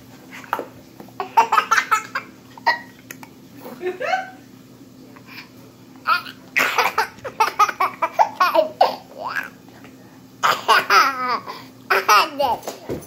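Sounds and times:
baby giggling: 1.2 - 3.0, 6.0 - 9.5.

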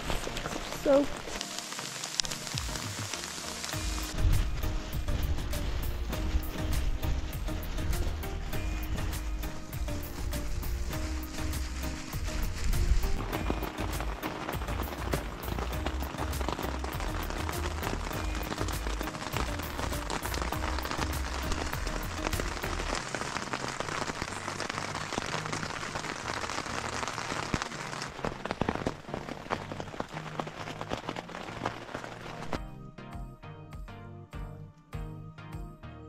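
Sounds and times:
heavy rain on tent fabric: 0.0 - 32.6
background music with bass line: 1.7 - 36.0.

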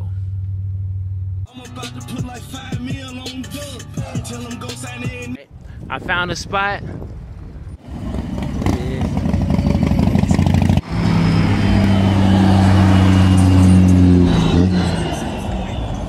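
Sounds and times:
passing vehicle engine: 7.8 - 16.0
steady low engine drone: 9.0 - 16.0.

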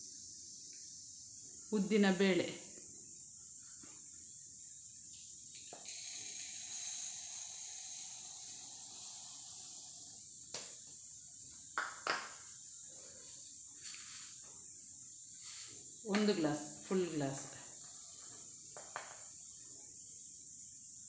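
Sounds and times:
grains pouring into cup: 5.7 - 10.5
cups knocking: 11.8 - 12.5, 18.7 - 19.3.

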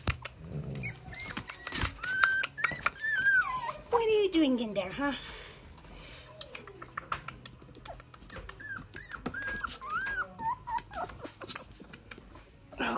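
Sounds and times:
puppy whining: 0.0 - 4.0, 6.5 - 12.9.

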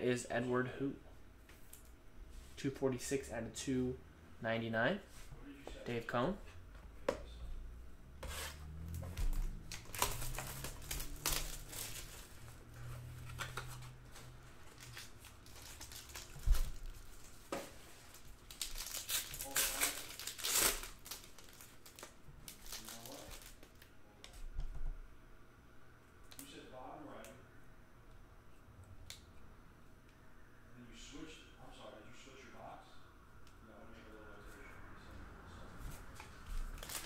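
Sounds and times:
plastic wrapper crinkling and tearing: 9.3 - 12.6, 13.3 - 23.9, 36.7 - 37.0.

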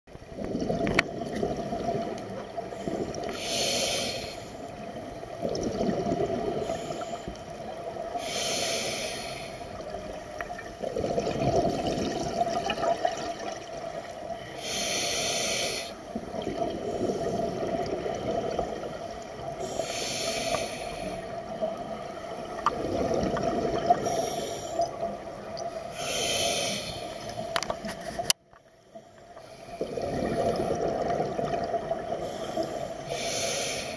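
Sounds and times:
bubbling exhaled air: 0.2 - 9.9, 10.5 - 27.5, 29.7 - 33.9
hissing regulator inhales: 2.7 - 4.8, 6.6 - 7.4, 8.1 - 9.8, 14.4 - 16.0, 19.6 - 21.4, 24.0 - 24.8, 25.9 - 27.5, 32.2 - 33.9.

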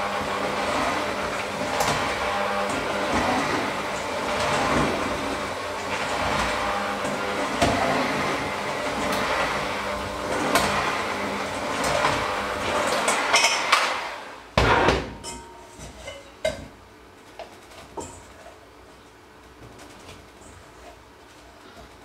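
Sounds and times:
electric hand mixer running: 0.0 - 14.6.

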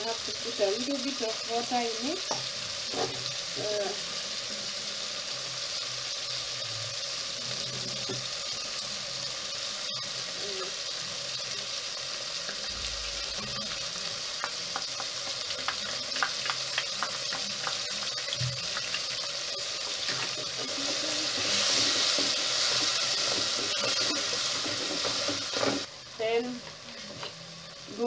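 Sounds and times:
vegetables sizzling in hot oil: 0.0 - 28.0
wooden spoon stirring pot: 20.0 - 25.9.

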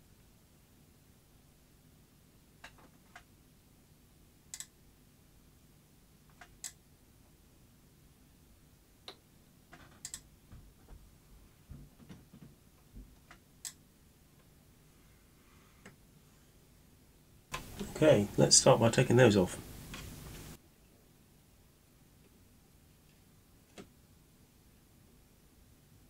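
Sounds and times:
faint sharp clicks: 4.5 - 4.8, 6.3 - 6.8, 13.2 - 13.8.

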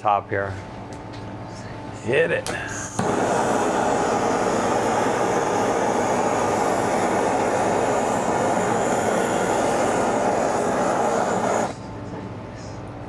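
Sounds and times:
blowtorch flame roaring: 2.7 - 11.8.

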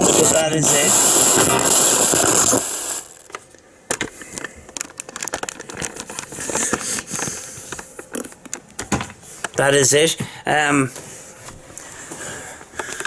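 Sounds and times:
hissy radio: 0.0 - 3.3
camera handling clicks and crackle: 3.3 - 8.8.

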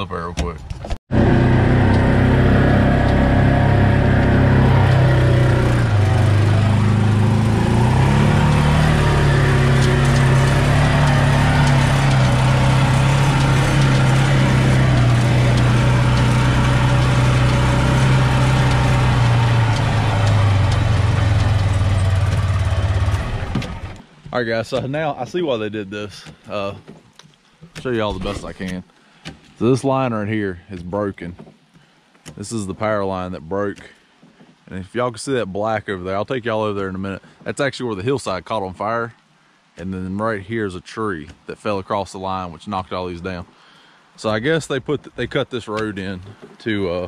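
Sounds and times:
utility vehicle engine running: 1.1 - 24.0.

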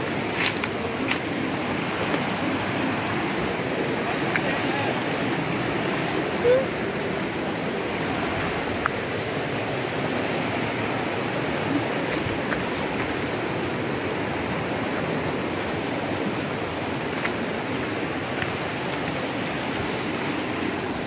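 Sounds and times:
water rushing over rocks: 0.0 - 21.0.

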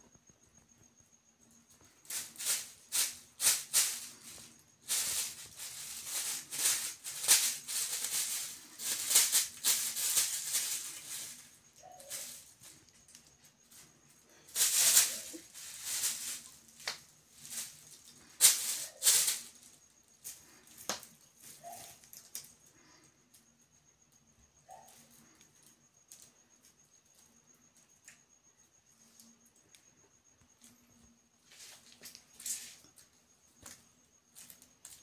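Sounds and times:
plastic bag crinkling: 14.5 - 19.6.

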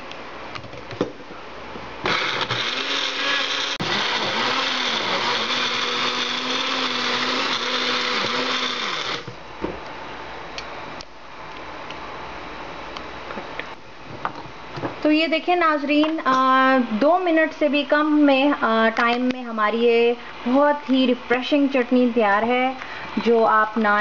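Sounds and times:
blender motor chopping: 2.0 - 9.4.

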